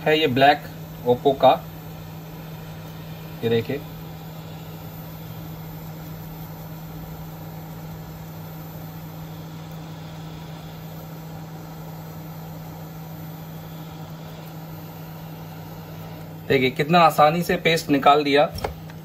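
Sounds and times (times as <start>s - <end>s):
electric fan hum: 0.0s - 19.0s.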